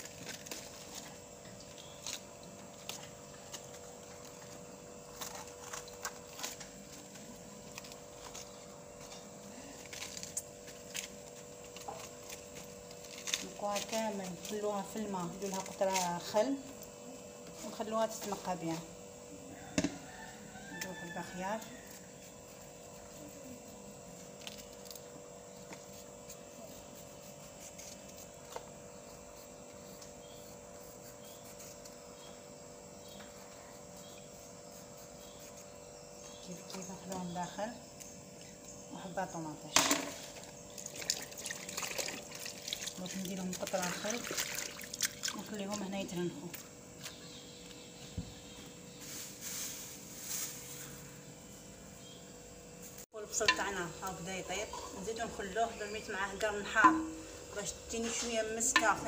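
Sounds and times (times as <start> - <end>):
steady hum: 21.4 - 59.0.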